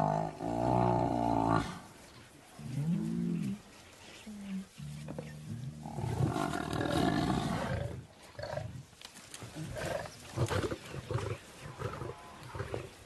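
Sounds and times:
lions growling: 0:04.8 - 0:08.8.

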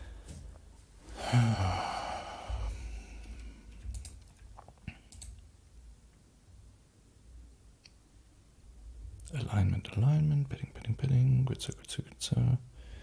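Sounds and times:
man sighing: 0:01.1 - 0:03.7
computer keyboard clicks: 0:03.3 - 0:04.5, 0:05.1 - 0:05.4.

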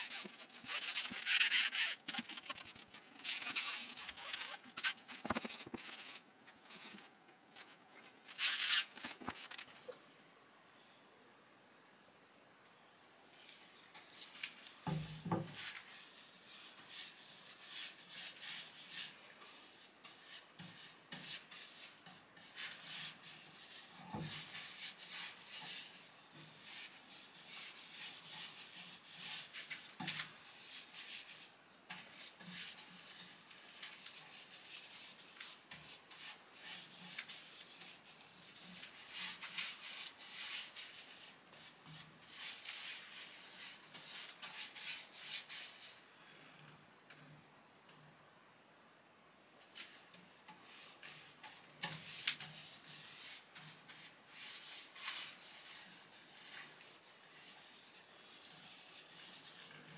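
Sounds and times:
paintbrush swishing over wood: 0:14.0 - 0:46.0, 0:49.7 - 0:59.9.

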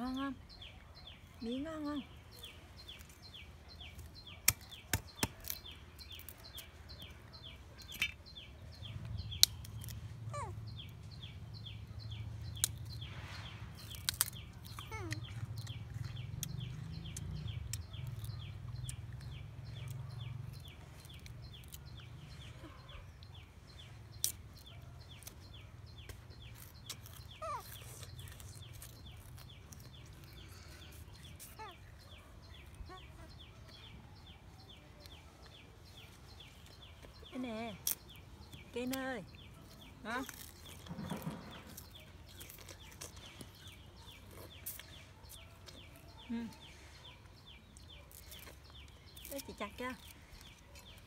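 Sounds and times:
plant stalk snapping: 0:04.0 - 0:06.7, 0:13.8 - 0:15.3.

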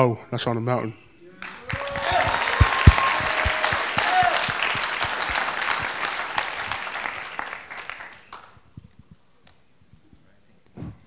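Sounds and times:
audience applauding: 0:01.4 - 0:08.6.

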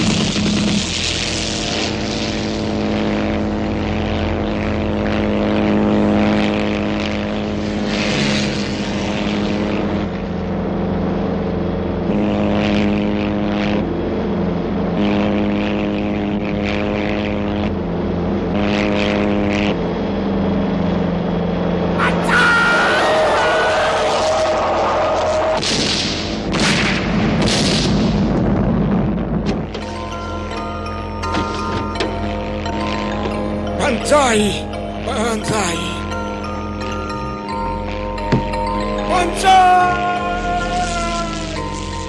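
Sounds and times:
propeller plane piston engine: 0:00.0 - 0:22.0
higher-pitched sound: 0:29.8 - 0:42.0.

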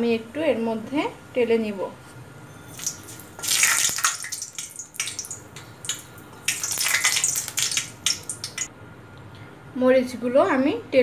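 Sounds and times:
chillies sizzling in hot oil: 0:02.7 - 0:08.7.

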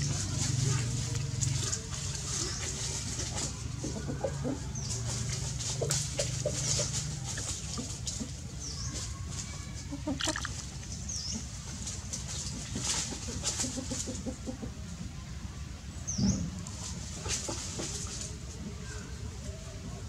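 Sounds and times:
water splashing: 0:00.0 - 0:03.5, 0:09.9 - 0:11.5.

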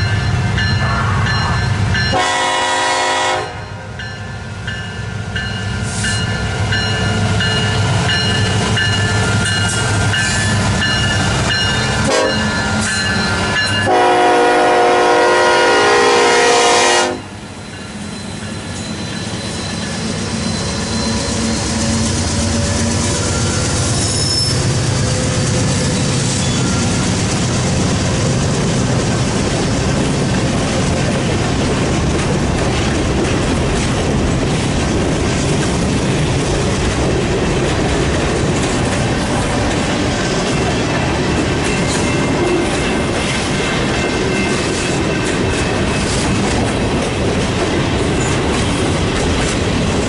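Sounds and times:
freight train rumbling past: 0:00.0 - 0:50.0
locomotive horn blowing: 0:00.8 - 0:03.8, 0:12.0 - 0:12.6, 0:13.8 - 0:17.4
train wheels clattering on rails: 0:04.0 - 0:14.9, 0:17.6 - 0:50.0.

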